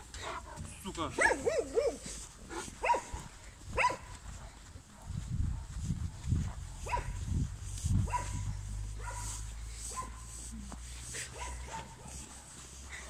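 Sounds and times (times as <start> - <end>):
dog barking: 1.2 - 7.2, 8.0 - 10.3, 11.3 - 12.6.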